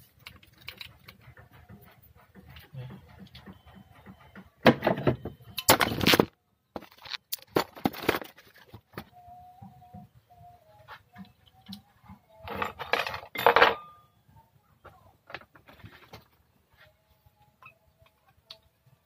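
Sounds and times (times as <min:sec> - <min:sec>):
metal fitting clinks and scrapes: 0:12.4 - 0:14.0.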